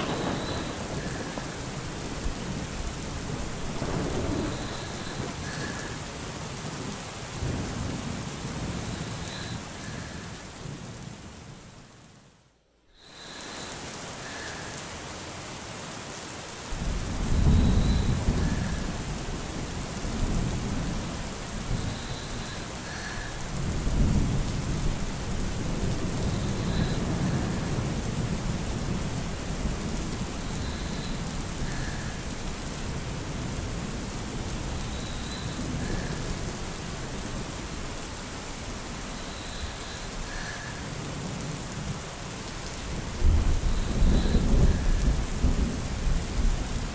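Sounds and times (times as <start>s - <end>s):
rolling thunder: 0.0s - 6.1s, 16.8s - 37.6s, 43.0s - 46.9s
steady rain: 0.0s - 46.9s.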